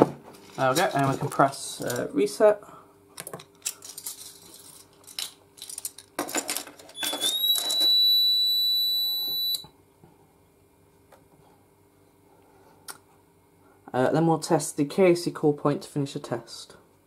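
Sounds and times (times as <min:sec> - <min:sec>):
handling knocks and rustles: 0:00.0 - 0:02.1
alarm panel buzzer beep: 0:07.0 - 0:09.7.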